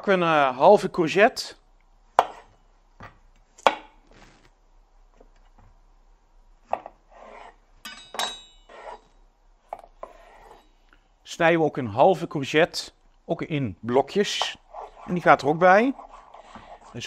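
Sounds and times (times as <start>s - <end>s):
knife chopping on wooden board: 2.2s - 2.5s.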